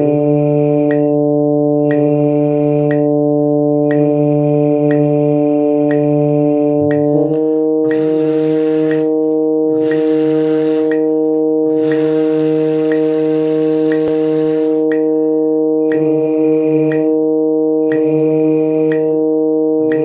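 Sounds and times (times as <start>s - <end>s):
brass mouthpiece buzzing: 0.0s - 20.0s
metronome ticking: 0.0s - 20.0s
tuner drone note: 0.0s - 20.0s.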